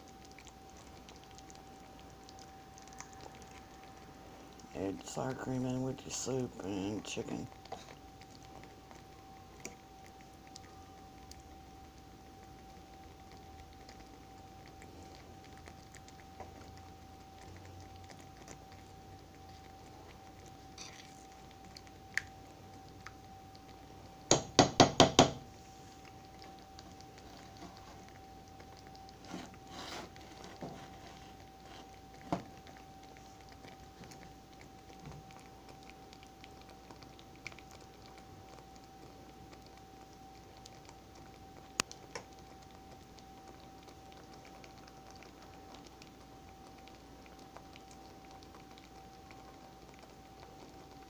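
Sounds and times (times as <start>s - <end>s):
utensil stirring in skillet: 0.0s - 43.2s
faint steady hum: 0.0s - 51.0s
utensil tapping on pan: 24.3s - 25.4s.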